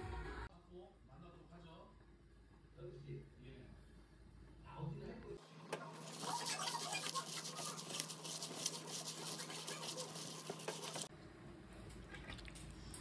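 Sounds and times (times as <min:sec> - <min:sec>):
plastic glove crinkling: 0:05.8 - 0:11.1.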